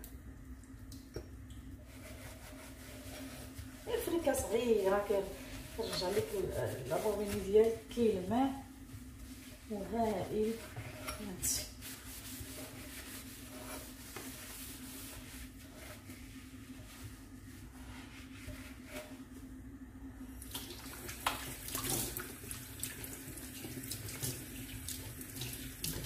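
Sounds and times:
sponge rubbing a metal tap: 1.9s - 8.1s, 9.4s - 17.0s
water running into a steel sink: 20.5s - 26.0s.

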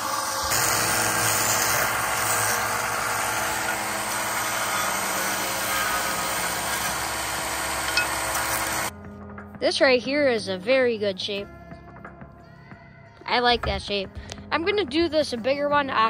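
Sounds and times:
sander motor humming: 0.0s - 8.9s
wood sanding grinding hiss: 0.0s - 8.9s.

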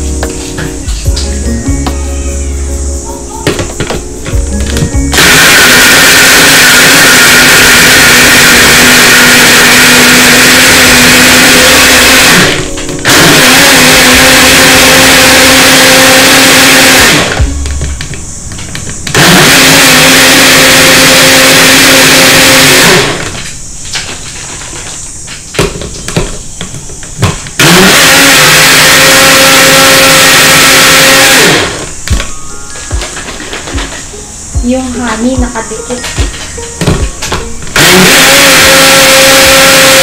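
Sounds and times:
blender motor running: 4.6s - 17.6s, 19.1s - 23.4s, 27.2s - 32.3s, 37.7s - 40.0s.

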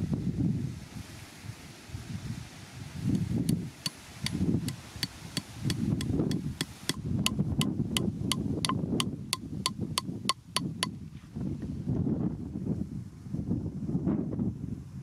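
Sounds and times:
wind rumbling on microphone: 0.0s - 15.0s
hammer driving nail into log: 4.2s - 10.9s.

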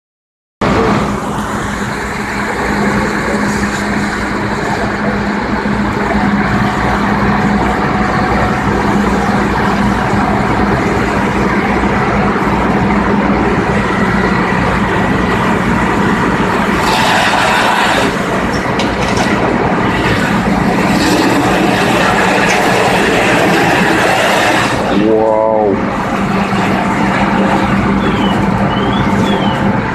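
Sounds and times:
diesel engine and pump running: 0.6s - 29.9s
loud hiss: 16.8s - 18.2s.

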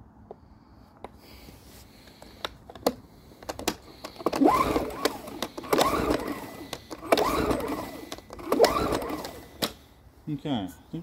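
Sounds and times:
handling clicks and knocks: 2.0s - 9.8s
recoil starter pull whir: 2.2s - 9.8s.

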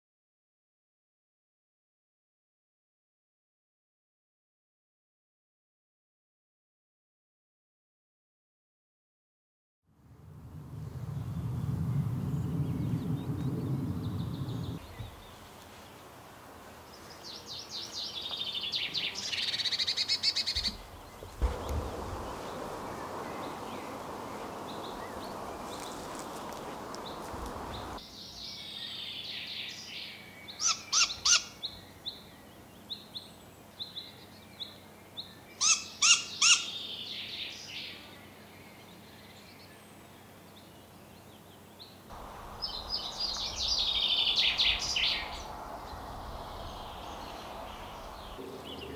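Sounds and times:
steady rushing noise: 10.0s - 15.6s, 20.8s - 28.0s, 42.1s - 48.9s
owl fledglings begging calls: 17.1s - 28.0s, 28.6s - 39.0s, 42.3s - 48.9s.

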